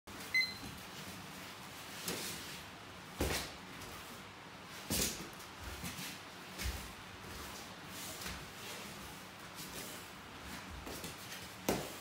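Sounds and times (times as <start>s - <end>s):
high electronic beep: 0.3s - 0.6s.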